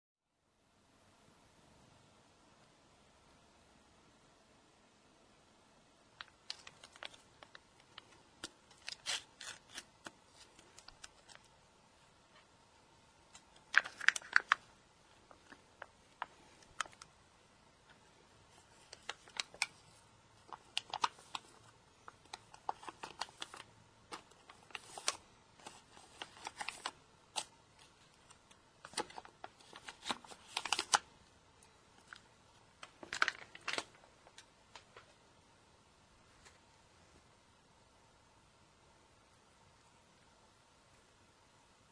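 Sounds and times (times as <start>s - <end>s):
plastic pouch crinkling: 6.2s - 11.5s, 13.3s - 17.1s, 18.5s - 31.1s, 32.0s - 34.5s.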